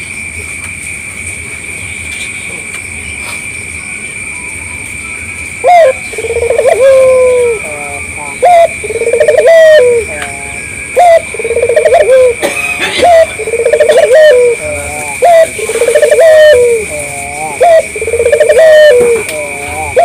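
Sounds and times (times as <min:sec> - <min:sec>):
dove cooing: 0:05.6 - 0:20.0.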